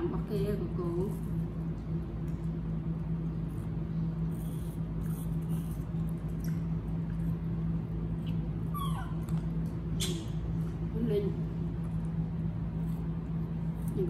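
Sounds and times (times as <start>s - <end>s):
steady low hum: 0.0s - 14.0s
baby monkey squeak: 8.7s - 9.2s.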